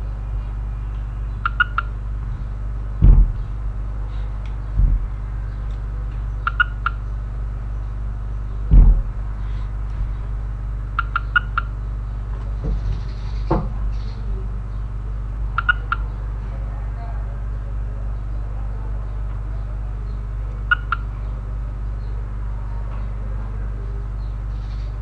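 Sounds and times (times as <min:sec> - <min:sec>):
low hum: 0:00.0 - 0:25.0
dull thumps: 0:02.0 - 0:04.0, 0:04.6 - 0:05.7, 0:08.6 - 0:10.5, 0:12.4 - 0:13.9.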